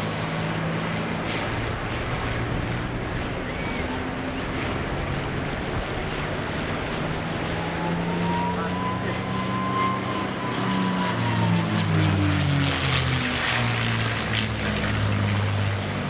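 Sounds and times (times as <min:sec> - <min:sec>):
propeller plane engine droning: 0:00.0 - 0:16.0
wind: 0:00.0 - 0:16.0.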